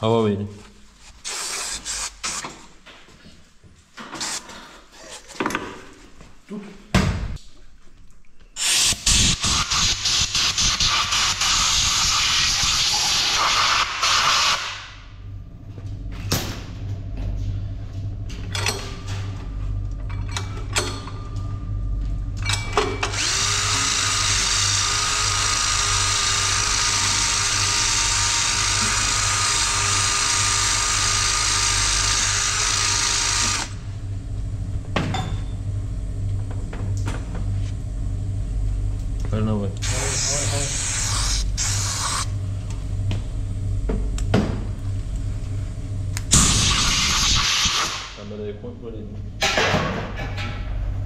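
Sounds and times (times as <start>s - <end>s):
steady low hum: 14.8s - 51.0s
power tool whining: 23.0s - 33.8s.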